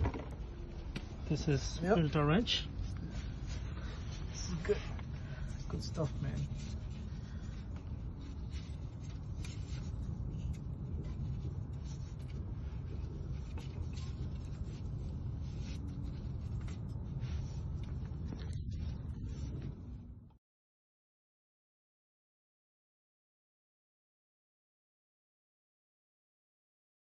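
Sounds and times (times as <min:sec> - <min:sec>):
steady low rumble: 0:00.0 - 0:20.4.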